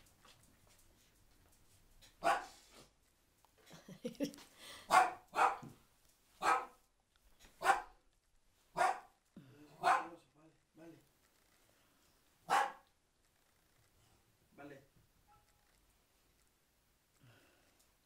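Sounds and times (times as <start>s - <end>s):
dog barking: 2.2s - 2.6s, 4.9s - 5.7s, 6.4s - 6.8s, 7.6s - 8.0s, 8.7s - 9.2s, 9.8s - 10.2s, 12.4s - 12.9s.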